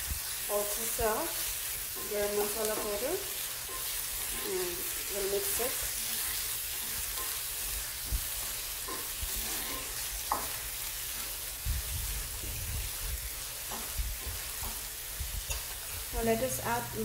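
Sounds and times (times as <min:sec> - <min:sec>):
spatula stirring and scraping: 0:00.0 - 0:16.2
onions sizzling in oil: 0:00.0 - 0:17.0
spatula tapping on pan: 0:09.7 - 0:10.6, 0:13.7 - 0:14.8.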